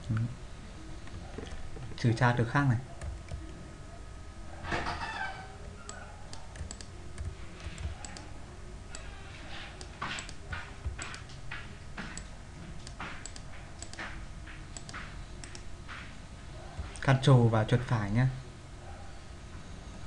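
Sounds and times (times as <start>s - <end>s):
keyboard keys clicking: 5.9s - 8.3s, 9.8s - 15.7s
mouse buttons clicking: 5.9s - 8.3s.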